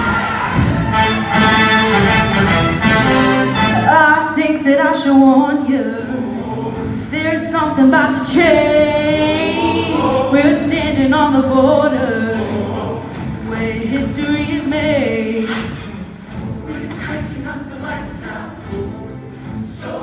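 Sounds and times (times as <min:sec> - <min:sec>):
choir singing in harmony: 0:05.2 - 0:20.0.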